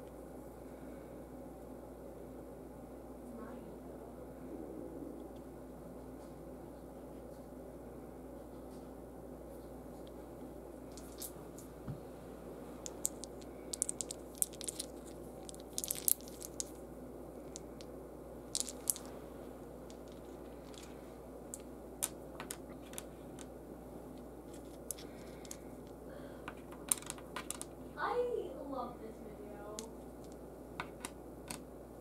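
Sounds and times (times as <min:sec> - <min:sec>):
low room hum: 0:00.0 - 0:32.0
wooden game pieces clicking: 0:10.9 - 0:11.3, 0:12.8 - 0:16.8, 0:17.4 - 0:17.9, 0:18.5 - 0:19.1, 0:19.8 - 0:23.5, 0:24.5 - 0:25.6, 0:26.5 - 0:27.7, 0:29.8 - 0:31.6.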